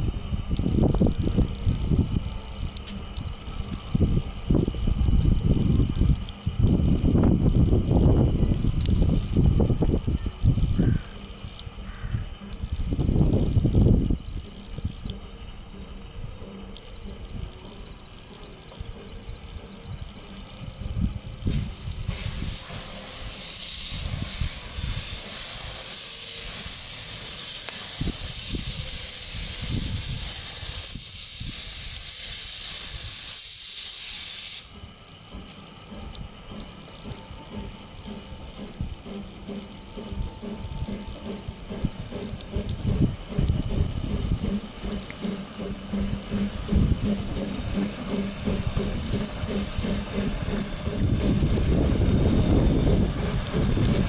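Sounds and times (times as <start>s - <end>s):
locomotive running gear on track: 0.0s - 33.4s, 34.0s - 54.0s
steam hissing from locomotive: 0.0s - 54.0s.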